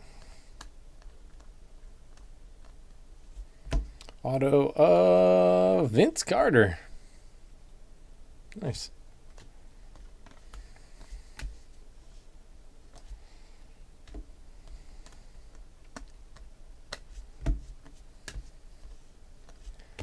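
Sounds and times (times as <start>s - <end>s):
trading cards flipped by hand: 9.3s - 11.7s, 14.0s - 20.0s.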